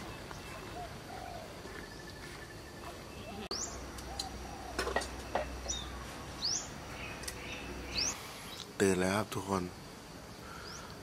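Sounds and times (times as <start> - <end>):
birds whistled chirps: 0.0 - 8.7, 10.5 - 11.0
dove cooing: 0.4 - 5.4.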